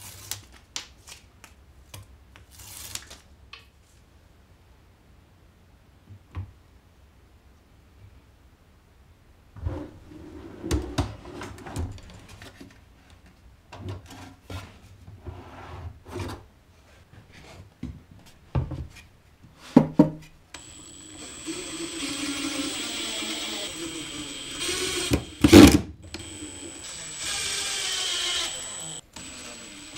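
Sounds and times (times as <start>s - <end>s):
drawer sliding on ball-bearing slides: 9.6s - 11.9s, 15.2s - 16.4s
power screwdriver running: 20.6s - 29.9s.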